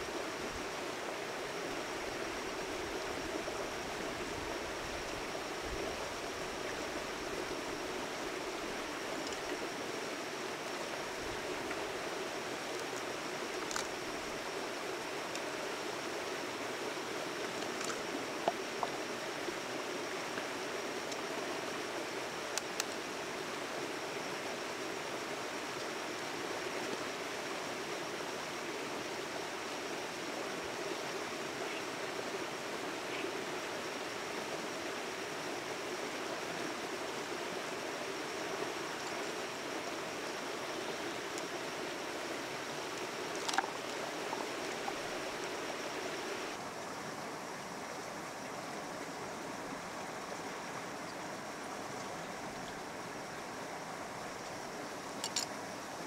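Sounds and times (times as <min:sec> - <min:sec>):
running water rushing: 0:00.0 - 0:56.0
faint clicks: 0:09.2 - 0:09.6, 0:12.7 - 0:14.0, 0:17.4 - 0:18.9, 0:43.0 - 0:44.0, 0:55.2 - 0:55.6.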